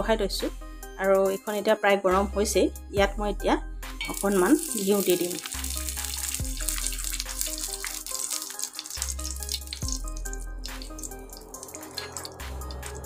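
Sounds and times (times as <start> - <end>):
ghee sizzling on a hot pan: 4.0 - 13.0
background music with bass line: 5.6 - 8.3, 9.0 - 13.0.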